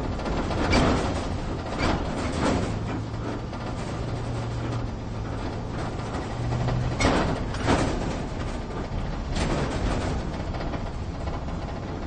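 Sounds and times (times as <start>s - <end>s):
engine drone and rumble: 0.0s - 12.0s
vehicle jolts and rattles: 0.0s - 12.0s.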